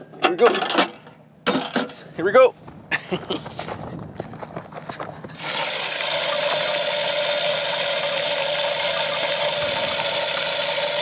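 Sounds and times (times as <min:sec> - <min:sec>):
feeder motor whirring: 0:05.4 - 0:11.0.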